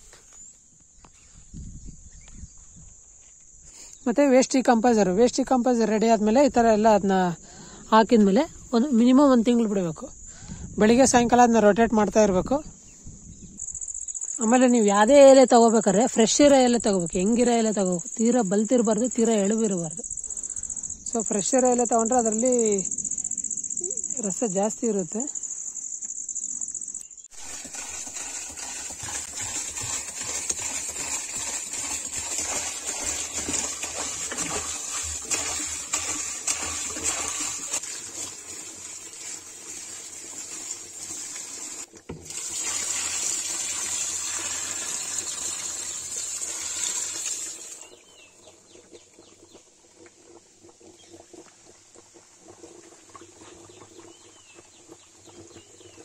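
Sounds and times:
crickets chirring: 0.1 - 27.6
liquid pouring and splashing: 27.3 - 56.0.

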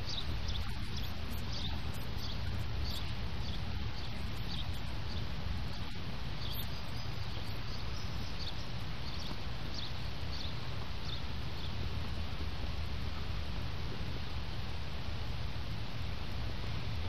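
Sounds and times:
faint high chirp: 0.0 - 11.8.

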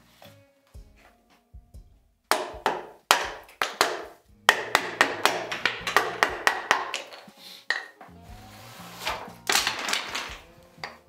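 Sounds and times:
mallet striking chisel: 2.3 - 7.9.

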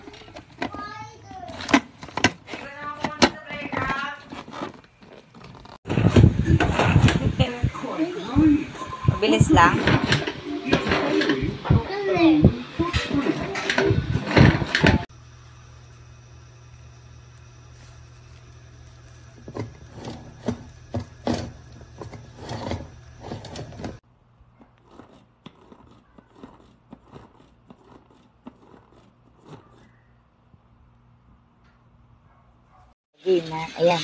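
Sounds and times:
steady low hum: 5.9 - 26.2
food chopper clicking and rattling: 19.3 - 24.0.

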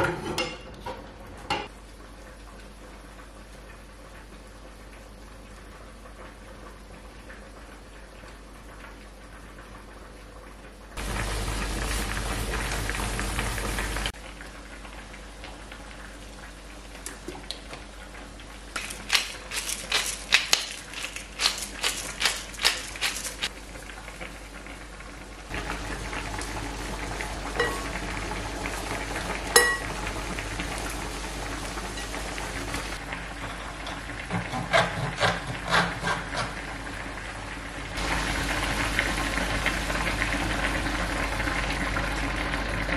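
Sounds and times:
mushrooms sizzling in a frying pan: 11.0 - 17.8, 18.6 - 34.2, 36.7 - 42.8
pepper grinder clicking: 18.8 - 23.5.

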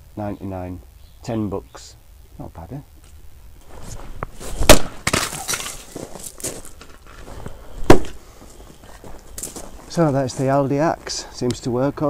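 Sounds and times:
logs clattering: 3.0 - 8.2
axe splitting logs: 4.6 - 6.0.

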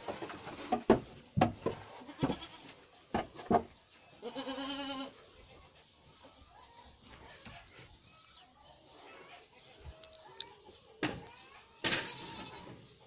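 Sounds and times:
sharp knocks and clatters: 0.0 - 2.5, 3.1 - 3.8
goat bleating: 2.0 - 2.8, 4.2 - 5.2, 12.0 - 12.8.

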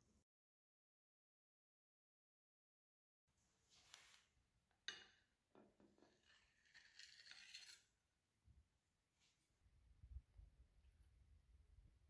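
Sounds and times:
cake server scraping plate: 6.0 - 7.9.

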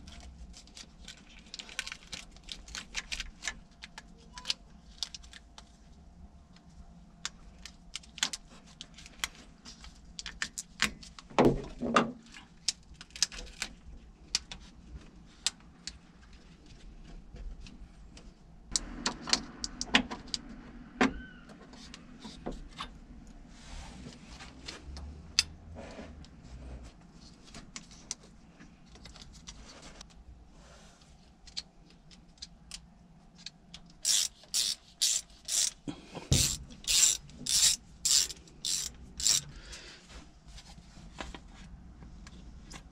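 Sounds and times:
rustling and scraping plastic: 0.0 - 6.0, 25.7 - 32.4
plastic connectors clicking: 33.4 - 39.5.

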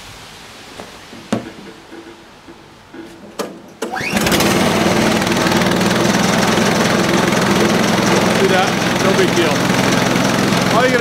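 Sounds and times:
recoil starter whirring: 0.7 - 11.0
knock: 0.8 - 3.6
small gasoline engine running: 3.9 - 11.0.

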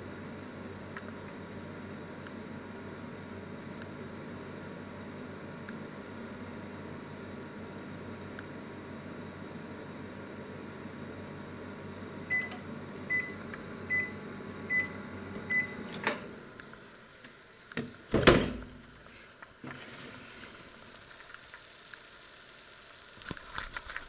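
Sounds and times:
microwave oven humming: 0.0 - 23.2
microwave beeping: 12.2 - 16.5
loud clunk: 17.8 - 18.8.

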